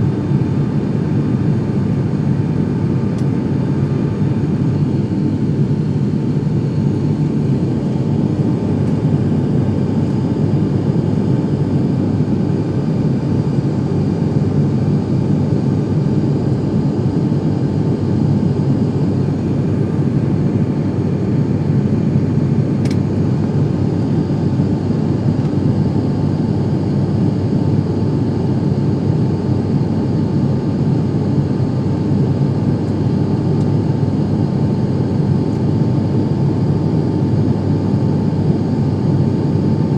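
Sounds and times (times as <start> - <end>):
aircraft engine drone in cabin: 0.0 - 39.9
brief click: 22.8 - 23.0.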